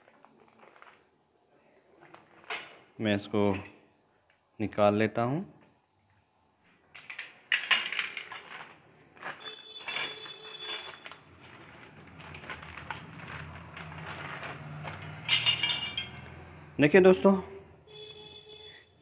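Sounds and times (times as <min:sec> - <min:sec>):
packaging crinkling: 0:00.0 - 0:01.1, 0:07.8 - 0:15.2.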